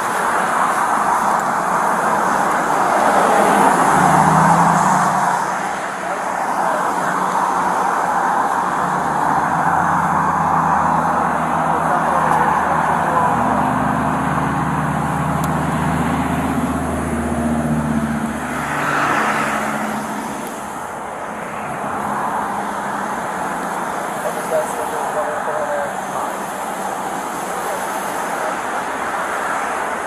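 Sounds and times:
car passing close: 0:00.0 - 0:30.0
vehicle engine low hum: 0:08.6 - 0:24.6.

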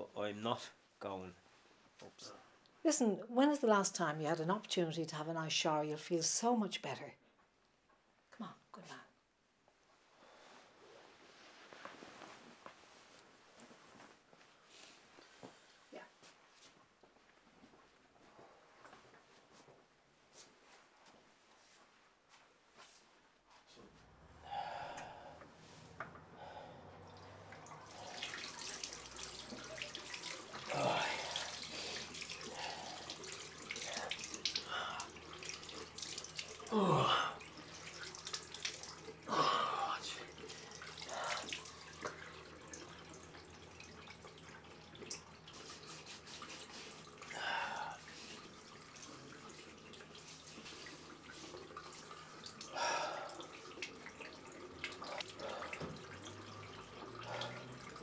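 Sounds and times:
man breathing: 0:24.3 - 0:27.0, 0:47.3 - 0:48.4, 0:52.7 - 0:53.4
water splashes: 0:26.5 - 0:58.0
tap water running into basin: 0:26.9 - 0:58.0.

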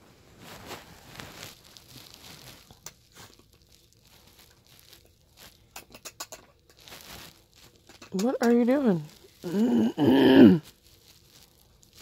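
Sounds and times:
book pages rustling: 0:00.3 - 0:05.7.

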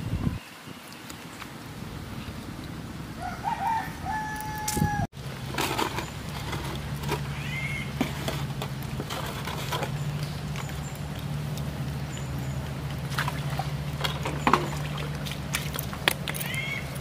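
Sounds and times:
rooster crowing: 0:03.2 - 0:05.1.

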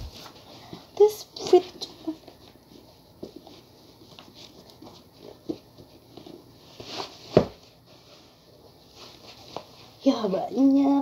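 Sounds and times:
sneaker knocks and rustles: 0:07.0 - 0:07.7.

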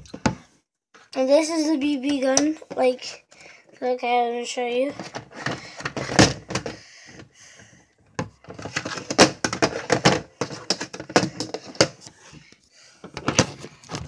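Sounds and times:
toys clattering in a box: 0:08.5 - 0:12.0.

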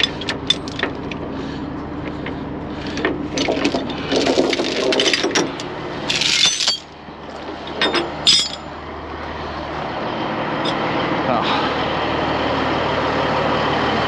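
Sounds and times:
steel chains clinking: 0:00.0 - 0:01.2, 0:02.8 - 0:07.0, 0:07.6 - 0:08.7
diesel truck engine idling: 0:00.0 - 0:04.2, 0:06.9 - 0:14.0.

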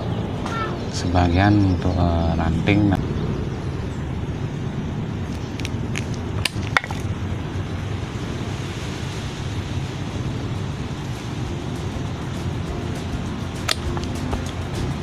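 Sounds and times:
low background rumble: 0:00.0 - 0:15.0
pruning shears snipping: 0:05.3 - 0:07.1, 0:13.4 - 0:15.0.

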